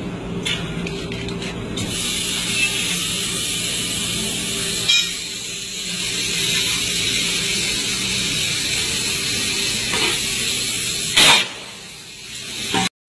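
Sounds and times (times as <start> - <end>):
compressed air hissing: 1.8 - 12.9
loud burst of air: 1.8 - 12.9.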